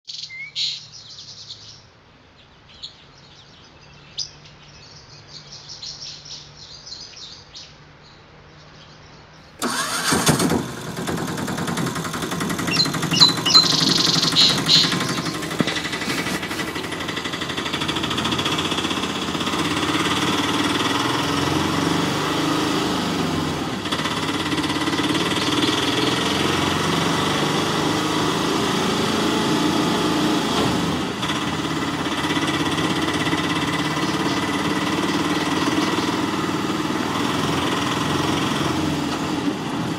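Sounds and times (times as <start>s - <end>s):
faint bird chirps: 0.1s - 9.6s, 12.7s - 15.8s
engine running: 9.5s - 39.9s.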